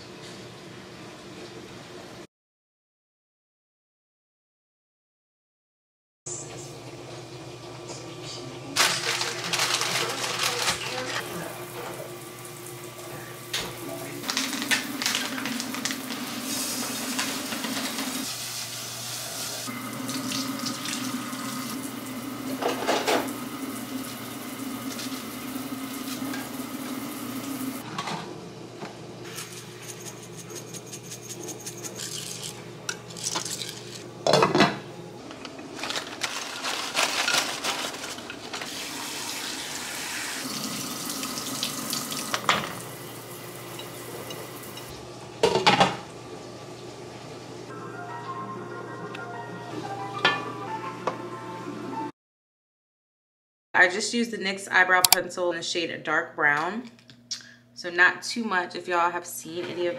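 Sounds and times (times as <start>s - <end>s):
dishes and utensils clattering: 22.5s - 23.3s, 29.3s - 34.8s, 43.7s - 44.9s.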